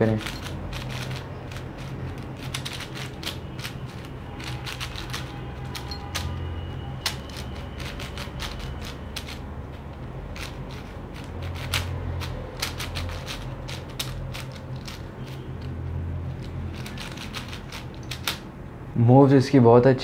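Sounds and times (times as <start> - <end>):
plastic puzzle cube clicking: 0.1 - 4.1, 10.3 - 15.0, 16.4 - 18.4.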